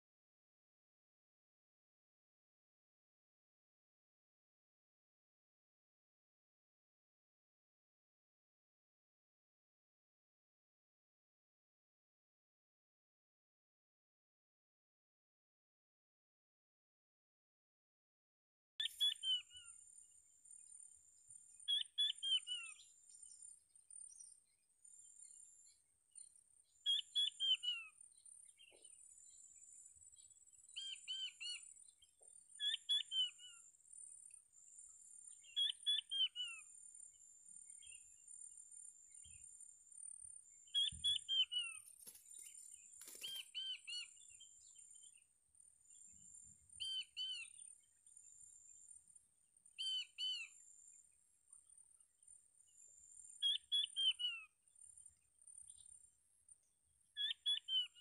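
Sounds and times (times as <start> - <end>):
quail whistled calls: 18.8 - 19.6, 21.7 - 22.8, 32.6 - 33.4, 35.6 - 36.6, 40.8 - 41.9, 53.4 - 54.4, 57.2 - 58.0
brief crackle: 41.8 - 43.5.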